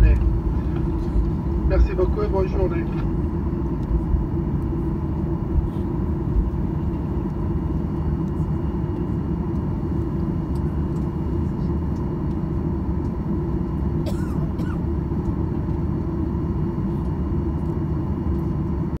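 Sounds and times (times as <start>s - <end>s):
thin steady whine: 0.0s - 18.9s
jet engines rumbling: 0.0s - 19.0s.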